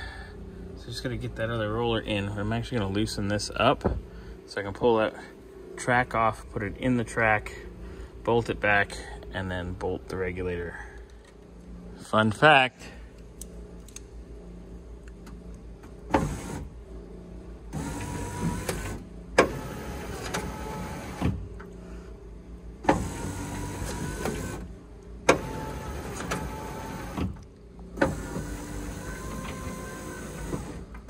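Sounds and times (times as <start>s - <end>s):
power window motor whine: 16.1s - 16.7s, 17.7s - 21.4s, 22.8s - 31.0s.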